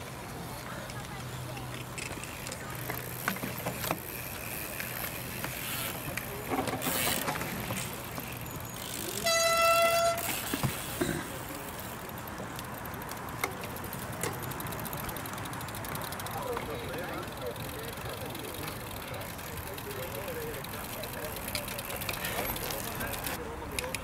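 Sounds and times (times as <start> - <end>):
steady background noise: 0.0 - 24.0.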